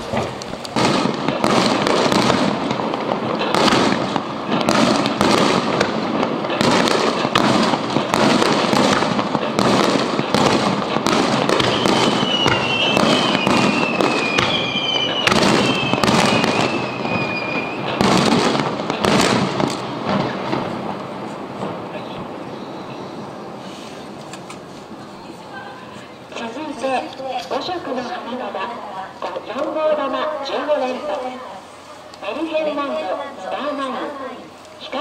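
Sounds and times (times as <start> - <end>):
firework shells bursting: 0.0 - 23.2
firework crackling: 0.0 - 35.0.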